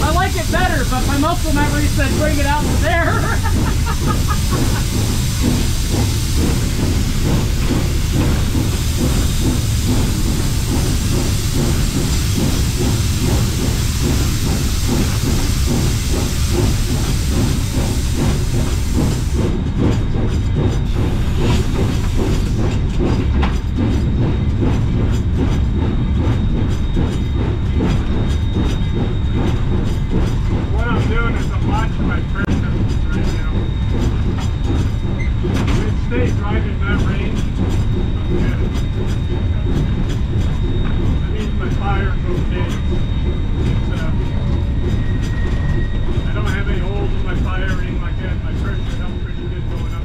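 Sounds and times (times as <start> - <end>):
steam hissing: 0.0 - 19.5, 20.9 - 22.8
steam locomotive rhythmic beat: 0.0 - 50.0.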